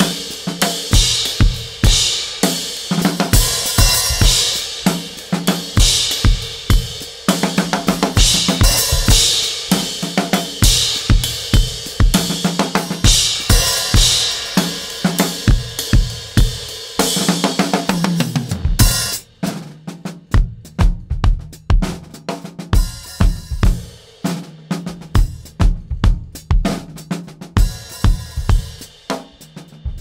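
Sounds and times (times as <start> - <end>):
cymbals: 0.0 - 19.8
snare drum: 0.0 - 30.0
kick drum: 20.4 - 21.9, 22.8 - 23.8, 25.2 - 26.7.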